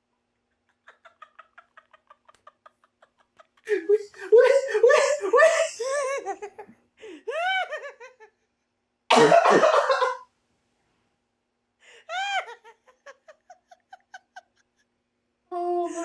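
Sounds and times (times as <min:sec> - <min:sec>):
people laughing hard: 0:00.7 - 0:06.7, 0:07.3 - 0:08.3, 0:12.1 - 0:14.8.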